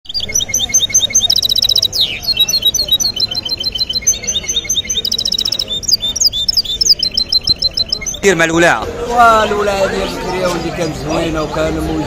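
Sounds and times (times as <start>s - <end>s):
fast buzzy bird trill: 0.1s - 8.4s
finch singing: 0.1s - 8.4s.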